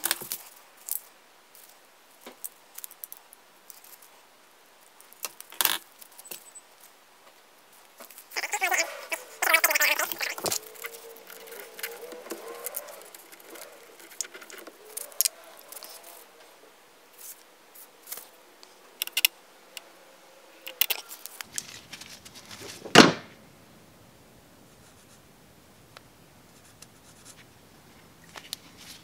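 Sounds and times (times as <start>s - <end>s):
cable rubbing: 7.7s - 20.0s.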